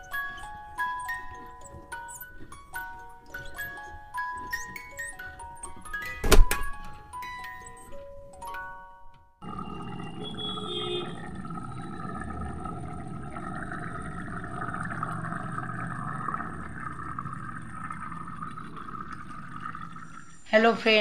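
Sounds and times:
curry bubbling: 9.4s - 20.5s.

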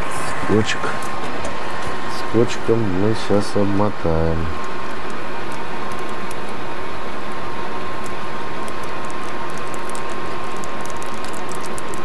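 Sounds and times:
ventilation whirring: 0.0s - 12.0s
hands working tape and wire: 4.6s - 12.0s.

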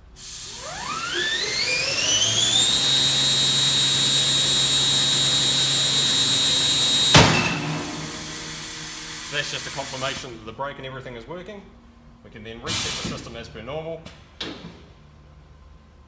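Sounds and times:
bandsaw whine: 0.3s - 10.2s.

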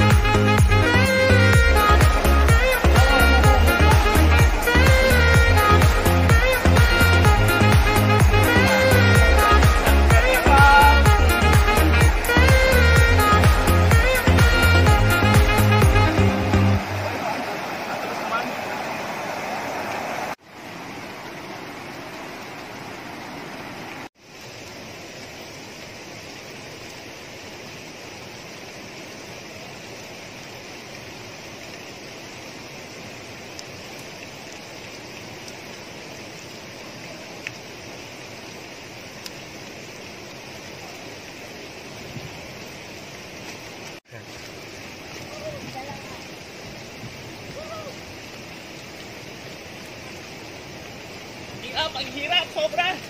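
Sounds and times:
fast-flowing water rushing: 0.0s - 53.0s
faint clicks: 39.2s - 39.4s.

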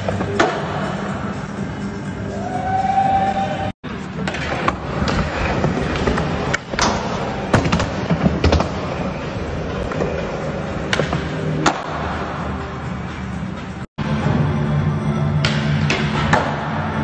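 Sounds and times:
skateboard wheels rolling on concrete: 3.9s - 13.8s.

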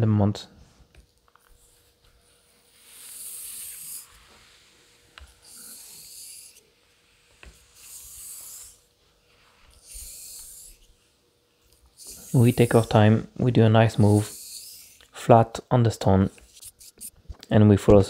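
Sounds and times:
razor honing on whetstone: 1.6s - 8.9s, 9.5s - 11.0s, 11.9s - 13.0s, 13.9s - 15.1s.

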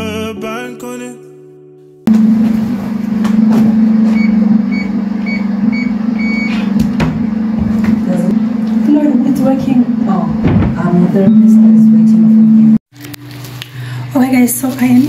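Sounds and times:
loud low hum: 2.1s - 12.8s
keypad beeping: 4.1s - 6.7s.

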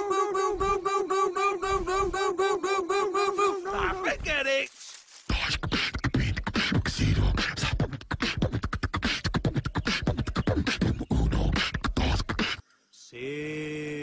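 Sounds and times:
person beatboxing: 5.3s - 12.6s.

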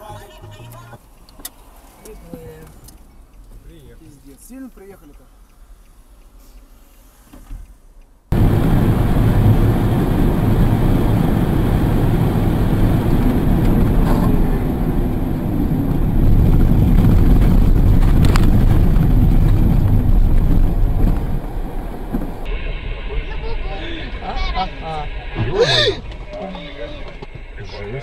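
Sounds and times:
tyre and wind noise from car: 8.3s - 23.0s.

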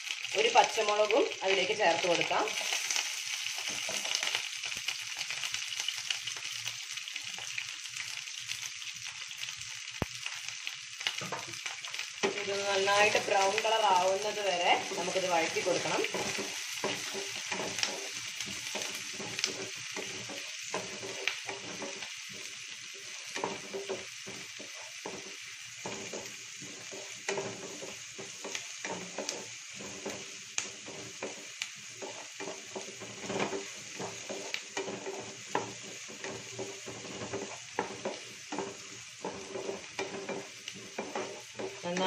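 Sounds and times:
onions sizzling in oil: 0.0s - 42.0s
spatula scraping a pan: 2.5s - 4.5s, 11.1s - 42.0s.

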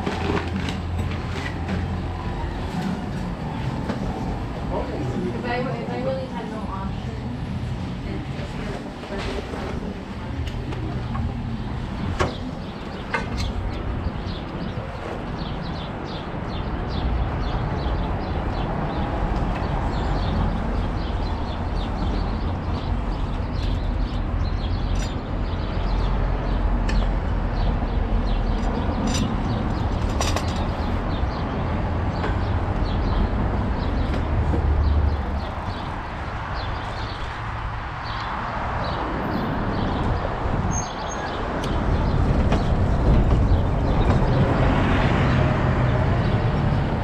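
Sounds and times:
traffic rumble: 0.0s - 47.0s
wind on microphone: 27.5s - 47.0s.

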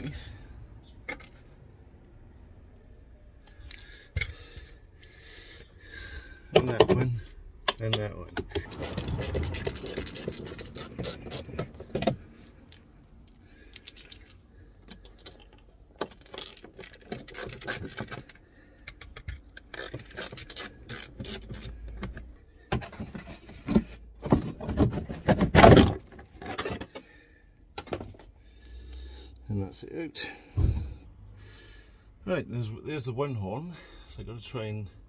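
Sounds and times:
plastic fasteners clicking: 7.7s - 22.2s.

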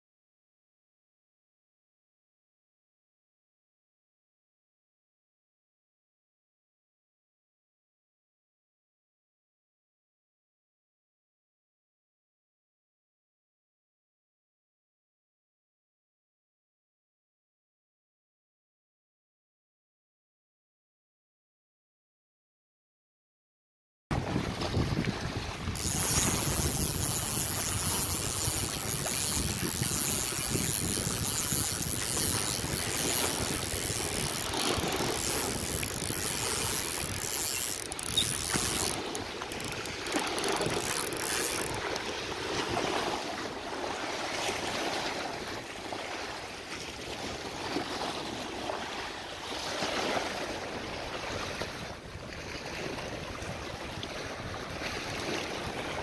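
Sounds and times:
wind buffeting microphone: 24.1s - 43.2s
waves lapping against rocks: 24.2s - 56.0s.

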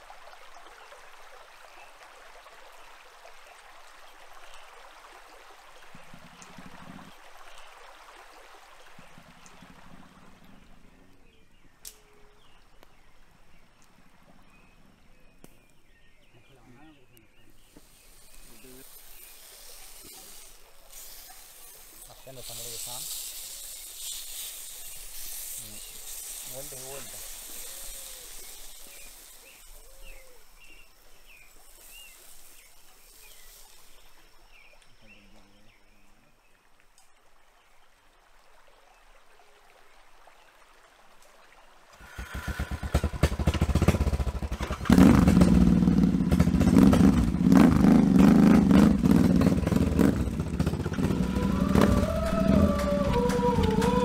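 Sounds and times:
stream trickling over pebbles: 0.0s - 53.7s
faint chirps: 14.4s - 36.3s
high hiss: 17.6s - 34.7s, 42.0s - 43.4s, 50.4s - 54.0s
low buzz: 42.0s - 54.0s
low drawn-out whistles: 50.9s - 54.0s.

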